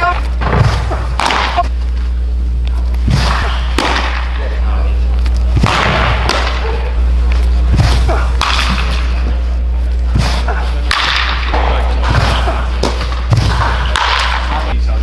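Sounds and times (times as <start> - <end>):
steady low hum: 0.0 - 15.0
bat cracking ball: 0.4 - 1.7, 3.1 - 4.4, 5.6 - 6.8, 7.8 - 9.2, 10.2 - 14.7.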